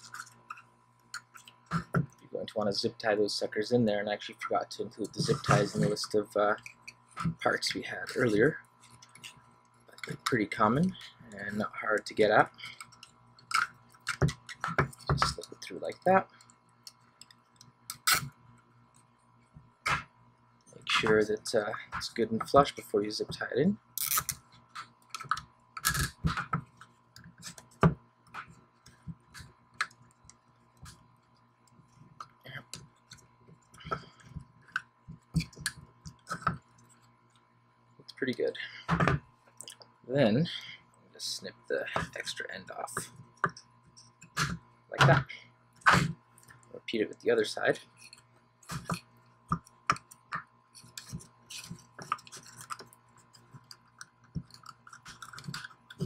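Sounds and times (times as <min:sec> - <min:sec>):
zip tie clicking and scraping: 0:17.9 - 0:18.3, 0:24.0 - 0:25.0.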